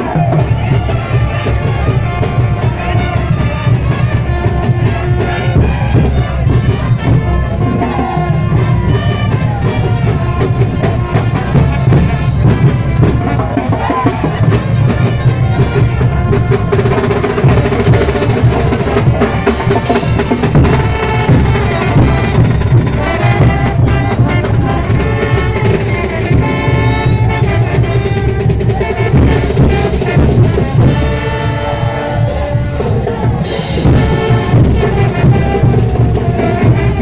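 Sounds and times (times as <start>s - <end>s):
bass drum pounding: 0.0s - 37.0s
marching brass band playing: 0.0s - 37.0s.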